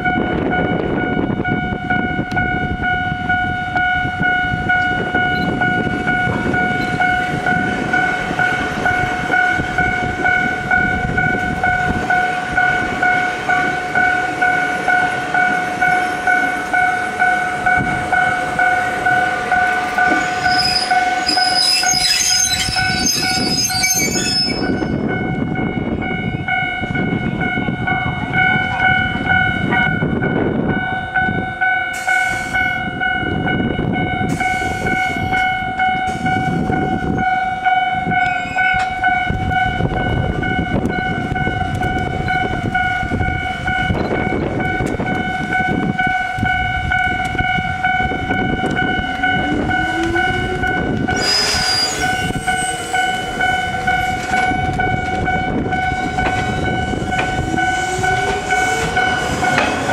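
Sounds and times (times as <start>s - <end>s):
level-crossing warning bell ringing: 0.0s - 59.9s
train wheels rumbling on rails: 0.0s - 59.9s
high-pitched wheel squealing: 20.0s - 25.0s, 48.9s - 53.6s.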